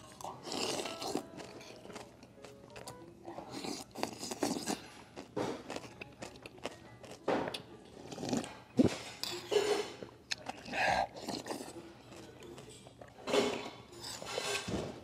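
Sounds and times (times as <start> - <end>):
person slurping soup: 3.5 - 4.9.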